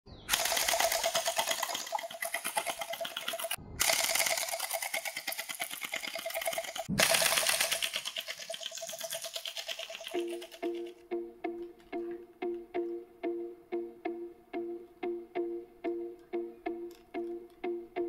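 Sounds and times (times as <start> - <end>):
gel blasters firing full auto: 0.3 - 8.2.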